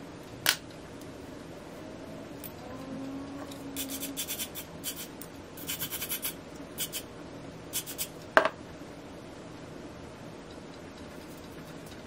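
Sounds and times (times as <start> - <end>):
aerosol can spraying: 3.8 - 7.0, 7.8 - 8.1.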